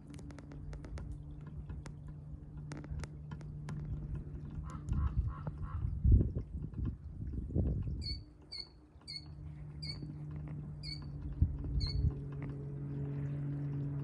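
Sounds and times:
steady low hum: 0.0 - 14.0
small animal chirping: 8.0 - 10.1, 11.8 - 12.0.

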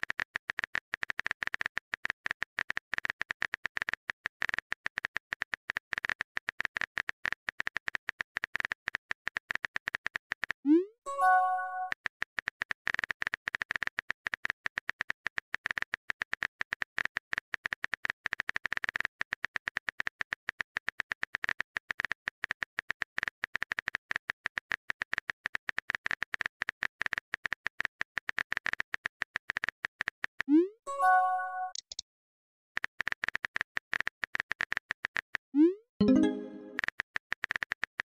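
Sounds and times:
phone keyboard clicks: 31.7 - 32.0
message pop with chime: 36.0 - 36.8.

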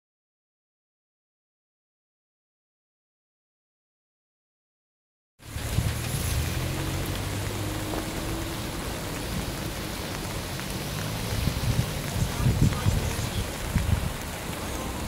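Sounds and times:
rain on wet ground: 5.4 - 15.0
runoff water: 5.4 - 15.0.

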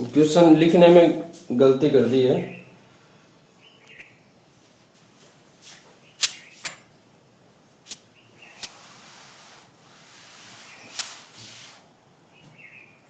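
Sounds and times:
cloth duster rubbing chalkboard: 7.9 - 11.9.

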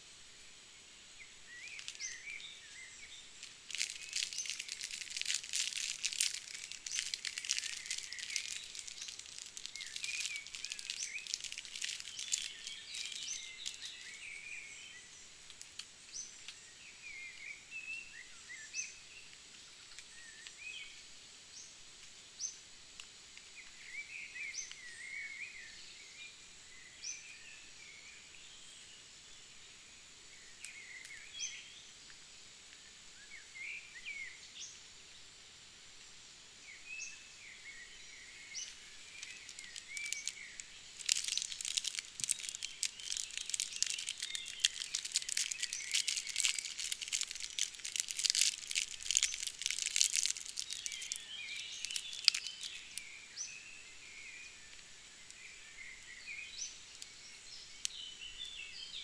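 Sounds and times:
small birds chirping: 0.5 - 22.6, 36.6 - 59.0
plastic packet crinkling: 1.6 - 14.2, 38.8 - 53.0.

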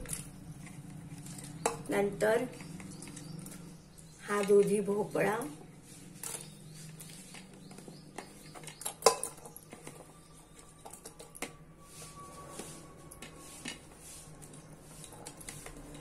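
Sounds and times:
metal clinks and knocks: 6.2 - 11.7.

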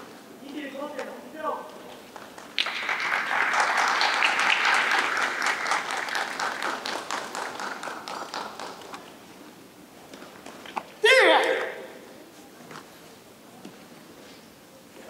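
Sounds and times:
audience applauding: 2.1 - 9.1.

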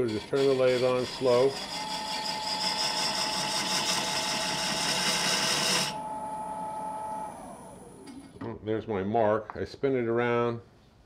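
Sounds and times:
tool scraping spinning wood: 0.0 - 6.0
lathe motor whining: 0.0 - 8.3.

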